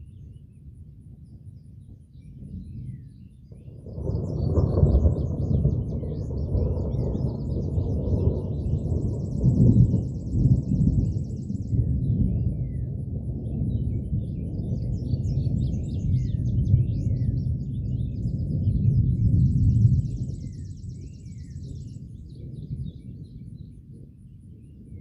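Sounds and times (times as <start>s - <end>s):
rolling thunder rumble: 0.0s - 25.0s
birds chirping and trilling: 13.6s - 24.8s.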